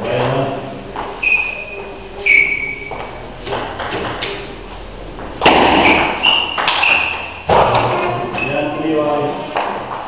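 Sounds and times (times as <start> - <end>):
table tennis ball bouncing: 2.9 - 4.4, 5.4 - 7.9
table tennis ball hit: 5.4 - 8.0.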